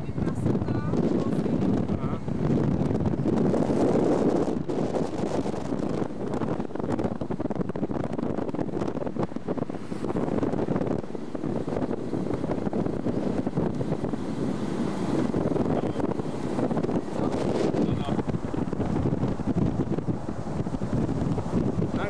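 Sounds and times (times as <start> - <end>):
car road noise: 0.0 - 22.0
wind buffeting microphone: 0.0 - 22.0.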